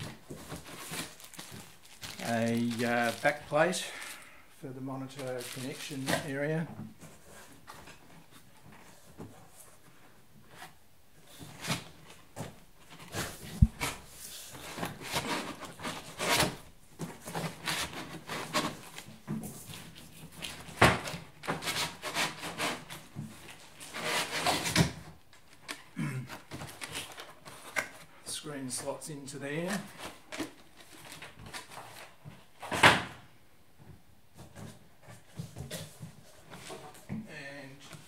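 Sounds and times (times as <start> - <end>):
cardboard scraping and rubbing: 12.9 - 25.0
knocks and thumps: 13.5 - 14.0.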